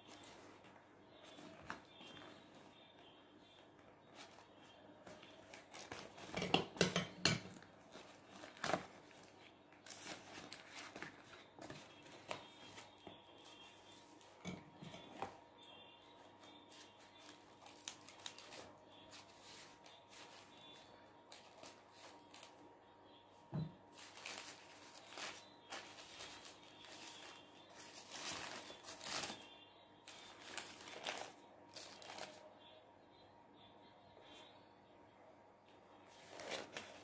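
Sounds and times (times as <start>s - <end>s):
cardboard and paper rustling: 0.0s - 6.4s, 7.6s - 15.4s, 16.1s - 22.6s, 23.9s - 29.5s, 30.1s - 32.4s, 36.1s - 37.0s.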